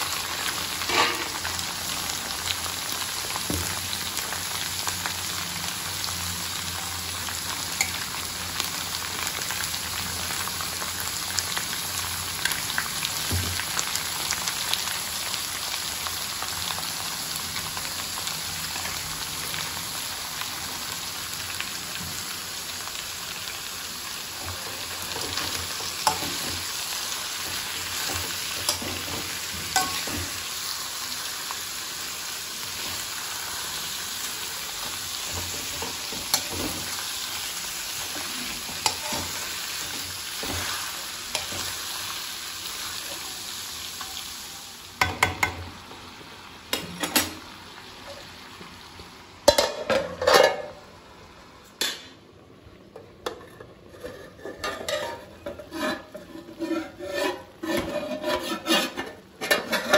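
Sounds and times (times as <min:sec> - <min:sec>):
chicken sizzling in hot oil: 0:00.0 - 0:51.9, 0:53.6 - 0:59.9
spoon scraping and knocking pan: 0:24.5 - 0:26.7, 0:27.4 - 0:30.4, 0:35.2 - 0:37.0, 0:38.0 - 0:41.9, 0:53.0 - 0:59.9.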